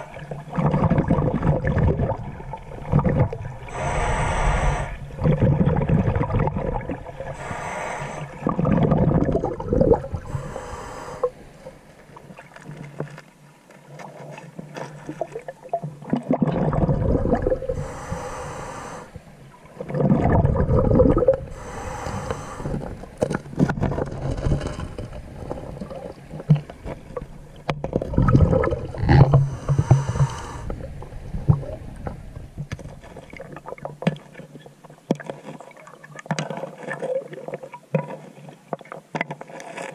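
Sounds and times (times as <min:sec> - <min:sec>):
diver breathing underwater: 0:03.1 - 0:05.9, 0:07.1 - 0:12.0, 0:17.3 - 0:19.4, 0:20.7 - 0:23.3, 0:28.6 - 0:32.2.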